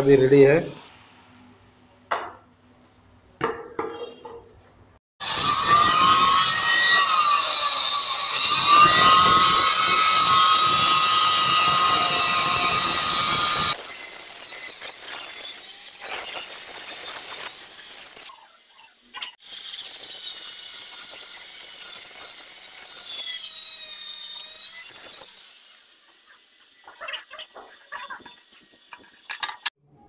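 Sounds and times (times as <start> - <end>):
electric stone cutter whining: 5.2 - 29.7.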